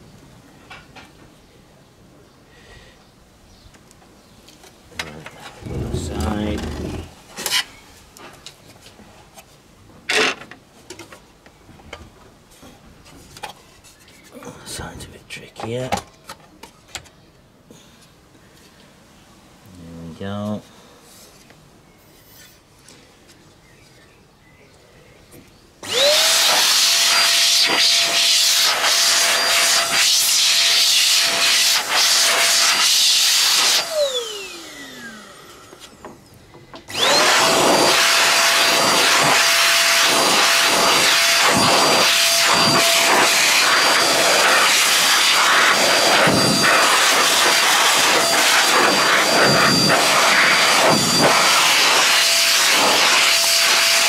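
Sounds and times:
electric air blower whine: 5.4s - 7.6s, 25.8s - 36.2s, 36.8s - 54.0s.

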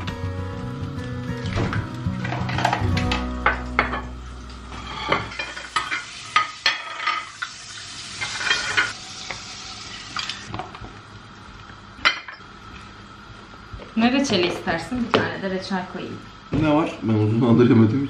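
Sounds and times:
plates set down on countertop: 1.5s - 7.4s.

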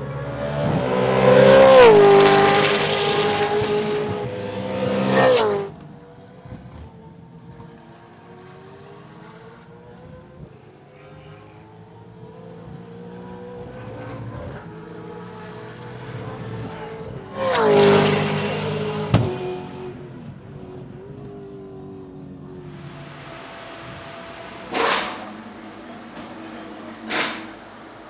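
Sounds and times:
race car passing: 0.0s - 5.8s, 12.4s - 20.0s, 22.6s - 28.0s
distant race car engine: 0.0s - 28.0s
sharp crack: 24.6s - 25.5s.

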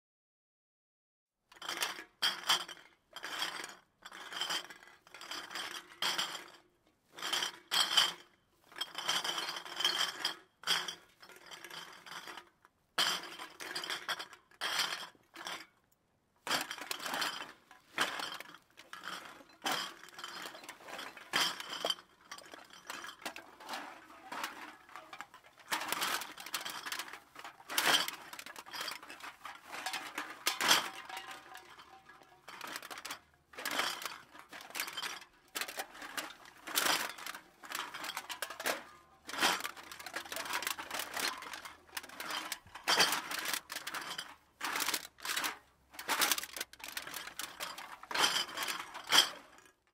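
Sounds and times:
glass bottles clinking: 16.5s - 49.6s.

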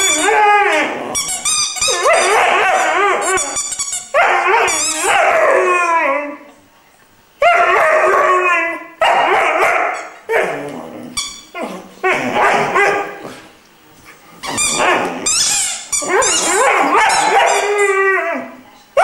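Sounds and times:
puppy howling: 0.0s - 1.2s, 1.8s - 3.6s, 4.2s - 6.5s, 16.0s - 18.6s.

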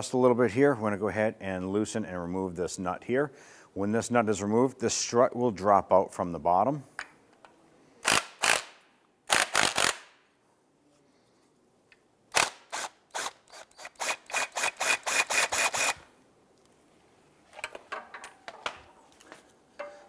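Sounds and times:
cordless drill pulses: 12.4s - 16.1s.

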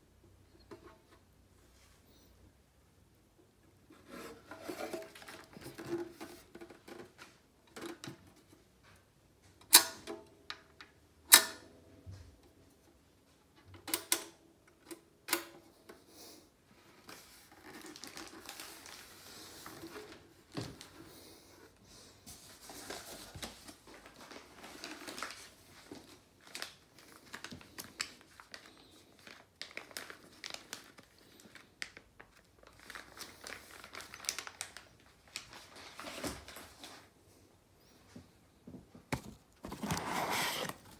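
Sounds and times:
plastic wrapping crinkling: 17.0s - 20.9s, 22.5s - 37.1s.

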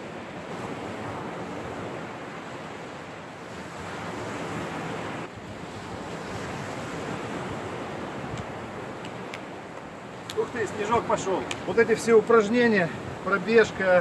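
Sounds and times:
wind on microphone: 0.0s - 13.3s
surf breaking on shore: 0.0s - 14.0s.

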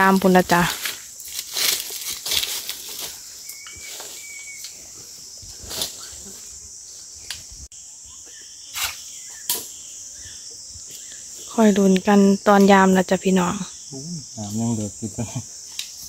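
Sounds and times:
insects chirring: 0.0s - 16.0s.

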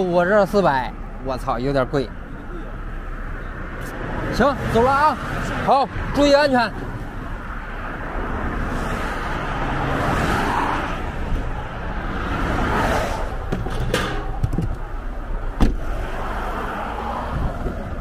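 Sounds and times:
expressway traffic rushing: 0.0s - 18.0s
car hatch slamming shut: 15.6s - 15.9s.

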